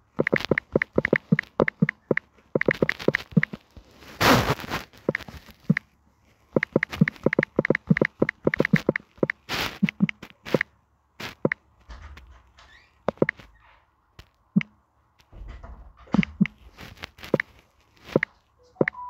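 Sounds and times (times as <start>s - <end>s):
smartphone typing clicks: 0.2s - 3.6s, 6.6s - 10.7s, 18.1s - 19.0s.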